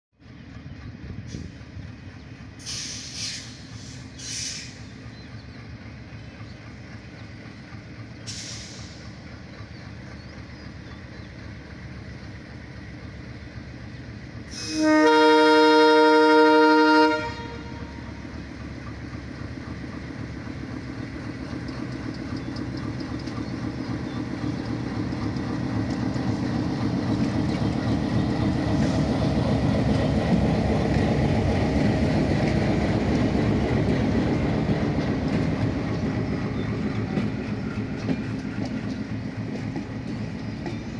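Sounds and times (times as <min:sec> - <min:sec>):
train engine and wheel rumble: 0:00.2 - 0:40.9
locomotive horn chord: 0:14.5 - 0:18.2.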